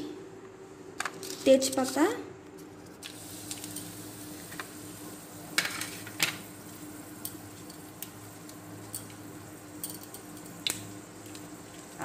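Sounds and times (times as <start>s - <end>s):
leaves sizzling in hot oil: 3.1s - 12.0s
oil popping and crackling: 9.9s - 12.0s.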